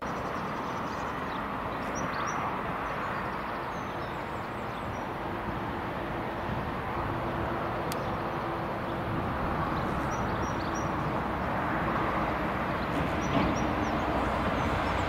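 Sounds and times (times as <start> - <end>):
locomotive diesel engine rumbling: 4.1 - 15.0
small birds chirping: 7.8 - 9.0, 9.7 - 11.0.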